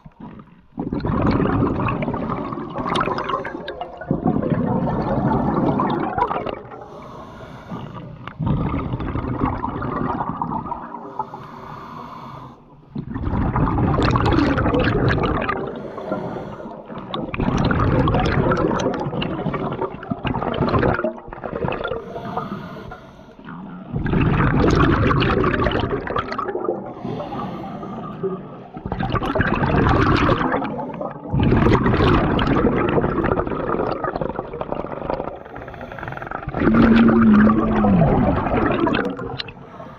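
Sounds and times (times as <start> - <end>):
exhaled bubbles rushing: 0.0 - 7.0, 7.9 - 11.4, 12.7 - 22.5, 23.4 - 39.7
regulator breathing underwater: 2.9 - 9.0, 10.1 - 13.6, 14.4 - 17.4, 21.6 - 24.0, 26.6 - 31.9, 35.2 - 39.9.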